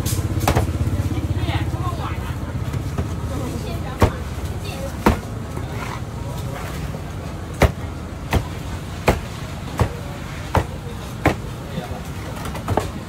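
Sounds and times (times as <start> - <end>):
knife chopping onto wooden board: 7.6 - 11.5.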